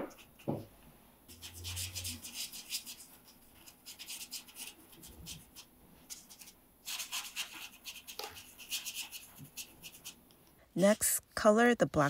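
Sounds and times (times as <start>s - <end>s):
brush stroking on paper: 1.3s - 10.2s.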